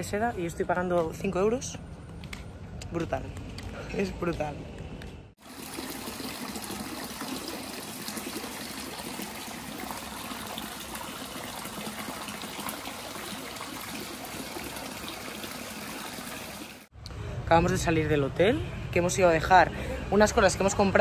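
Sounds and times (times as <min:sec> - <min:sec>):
water running and splashing: 0:05.4 - 0:16.9.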